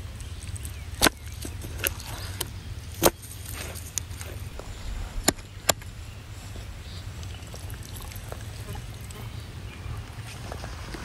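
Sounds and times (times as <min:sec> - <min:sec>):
low rumble: 0:04.4 - 0:09.2.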